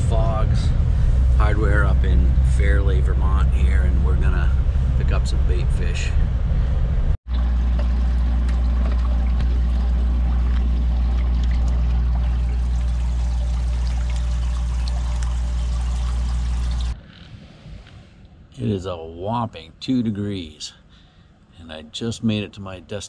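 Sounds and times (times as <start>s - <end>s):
pump electric hum: 7.3s - 17.0s
water bubbling and pouring: 7.3s - 17.0s.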